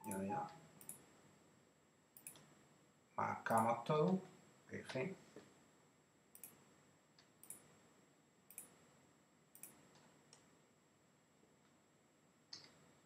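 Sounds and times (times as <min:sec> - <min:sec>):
computer mouse clicks: 0:00.0 - 0:01.0, 0:02.2 - 0:02.5, 0:06.3 - 0:06.6, 0:07.2 - 0:07.7, 0:08.5 - 0:08.8, 0:09.5 - 0:10.5, 0:12.5 - 0:12.8.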